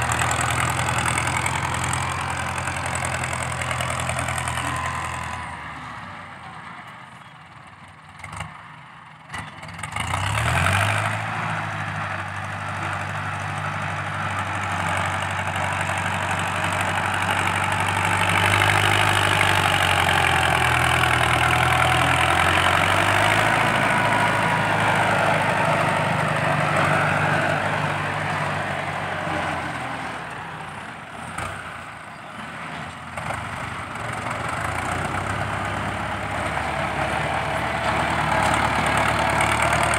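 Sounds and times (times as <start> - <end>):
tractor diesel engine working hard: 0.0 - 39.9.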